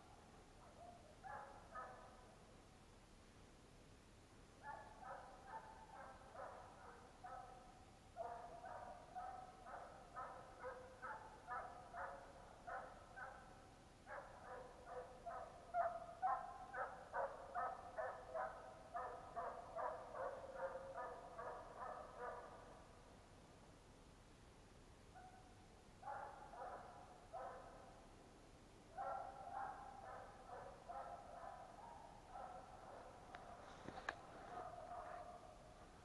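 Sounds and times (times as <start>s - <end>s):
distant hunting dogs baying: 4.6s - 22.8s, 26.0s - 28.0s, 28.9s - 36.0s.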